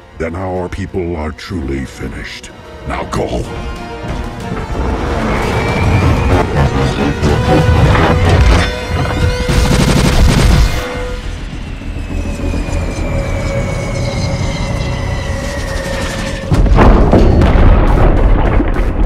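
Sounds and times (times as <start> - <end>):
orchestral film score: 0.0 - 19.0
booming impacts: 4.0 - 11.1, 16.4 - 19.0
high falling tone: 4.6 - 9.5
rapid blaster fire: 9.4 - 10.9.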